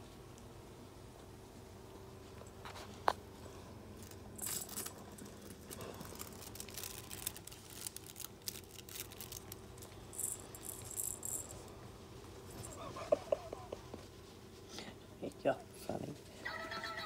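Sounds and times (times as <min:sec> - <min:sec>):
toys rattling and jingling: 0:04.0 - 0:07.4, 0:10.1 - 0:11.6.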